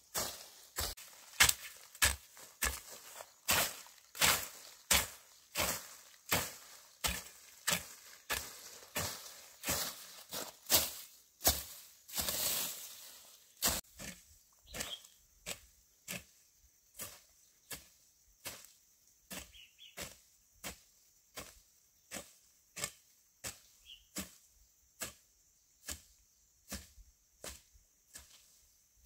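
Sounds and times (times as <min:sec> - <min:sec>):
tool chopping: 0:00.8 - 0:09.9.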